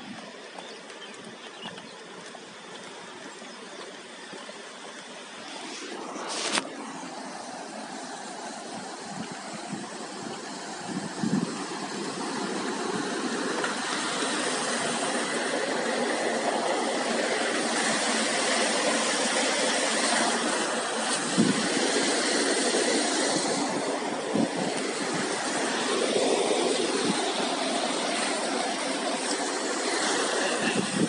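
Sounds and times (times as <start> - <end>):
river rushing: 0.0 - 31.0.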